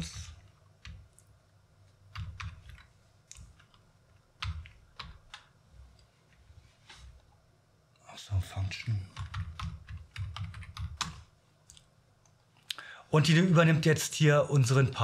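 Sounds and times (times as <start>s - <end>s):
keyboard typing: 2.1s - 5.5s, 9.1s - 11.3s.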